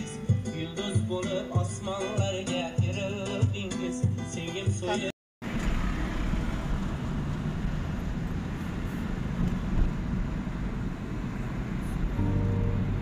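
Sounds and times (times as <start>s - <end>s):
car road and engine rumble: 5.4s - 13.0s.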